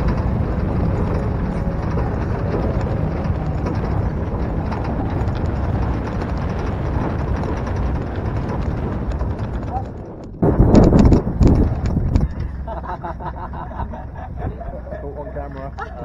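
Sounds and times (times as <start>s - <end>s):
wind rushing: 0.0s - 12.6s
pickup truck road and engine noise: 0.0s - 16.0s.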